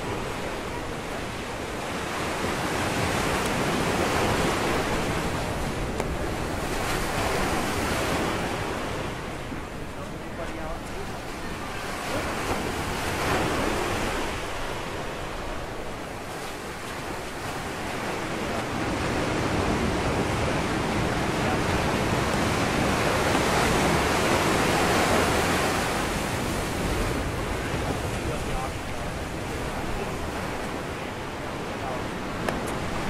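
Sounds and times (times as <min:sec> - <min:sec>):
surf washing onto rocky shore: 0:00.0 - 0:33.0.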